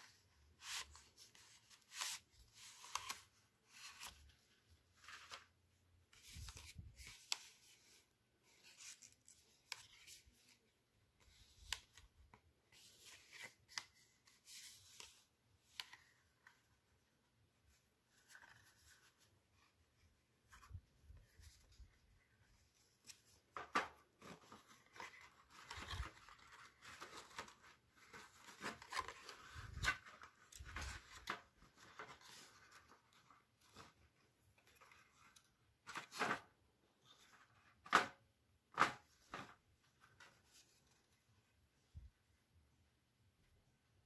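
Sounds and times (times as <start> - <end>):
cardstock rustling and crinkling: 17.6 - 41.2.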